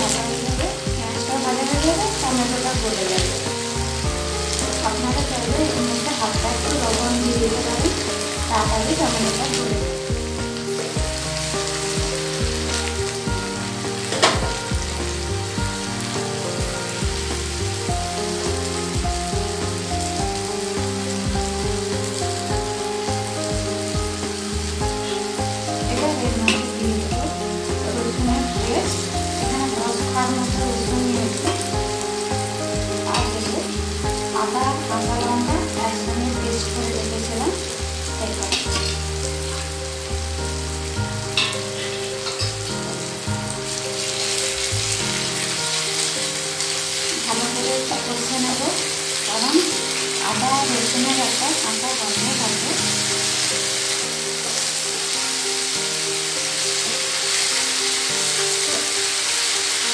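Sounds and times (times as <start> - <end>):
onions frying in oil: 0.0 - 59.9
spatula scraping a pan: 41.3 - 42.6.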